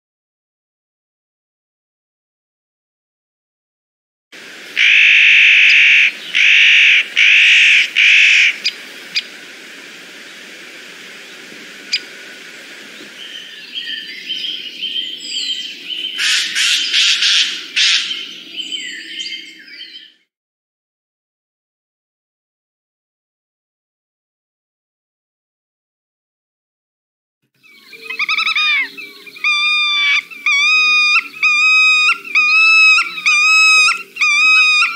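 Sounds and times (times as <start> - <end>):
bird harsh rasping calls: 4.8 - 8.8, 16.1 - 18.4, 27.6 - 34.9
small birds chirping: 12.8 - 20.2, 27.6 - 34.9.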